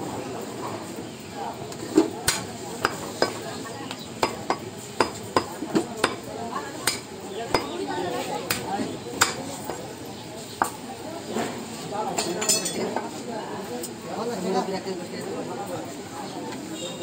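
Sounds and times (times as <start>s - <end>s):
cleaver chopping meat on wood: 2.2s - 7.8s, 8.4s - 9.5s.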